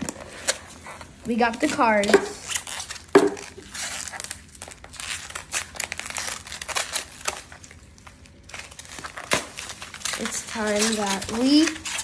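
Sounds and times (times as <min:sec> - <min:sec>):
bubble wrap crinkling: 0:00.0 - 0:12.0.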